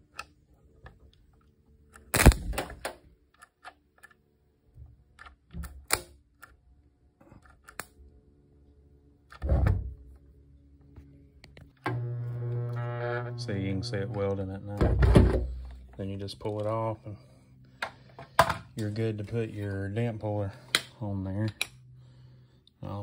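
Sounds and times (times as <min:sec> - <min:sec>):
stud welder zaps: 0:02.0 - 0:02.8.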